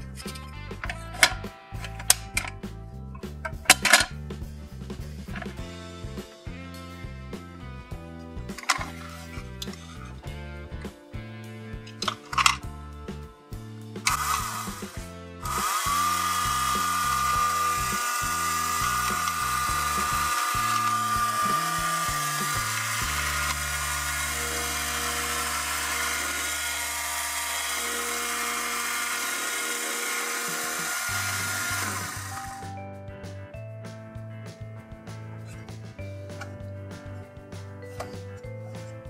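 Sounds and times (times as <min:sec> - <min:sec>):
background music: 0:00.0 - 0:39.0
small electric motor whining: 0:14.0 - 0:32.7.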